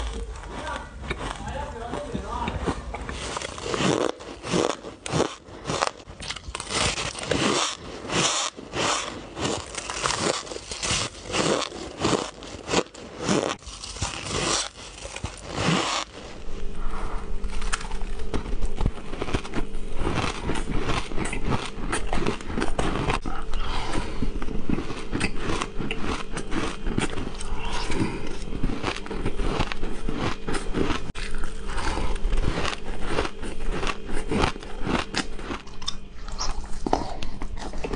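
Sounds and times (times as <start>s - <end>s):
chewing shaved ice: 0.0s - 16.4s, 17.4s - 37.9s
steady low hum: 0.0s - 37.9s
ice crunched and bitten: 3.1s - 16.4s, 17.4s - 23.7s.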